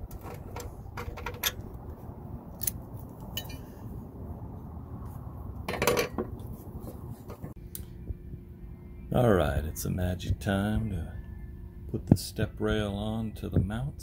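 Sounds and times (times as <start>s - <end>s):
rattling clatter: 0.1s - 1.6s
metal hardware clicking and clinking: 0.1s - 1.8s.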